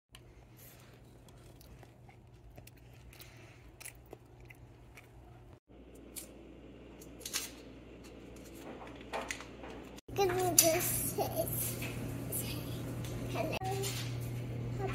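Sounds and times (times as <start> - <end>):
cookie crunching: 0.2 - 6.4.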